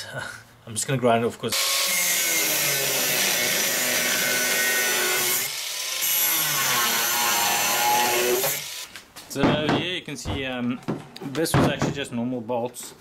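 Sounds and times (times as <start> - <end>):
angle grinder grinding steel: 1.5 - 9.0.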